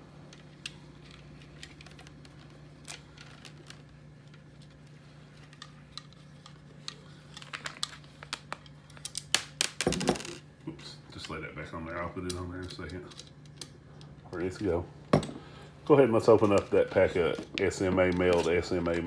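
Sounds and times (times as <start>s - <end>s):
steady low hum: 0.0s - 19.0s
radio and cables clicking: 16.3s - 19.0s.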